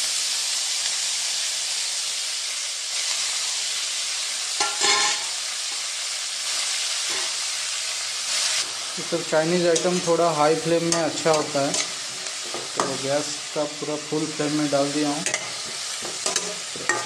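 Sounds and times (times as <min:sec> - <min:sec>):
vegetables sizzling in oil: 0:00.0 - 0:17.0
metallic stirring scrape: 0:04.6 - 0:05.3.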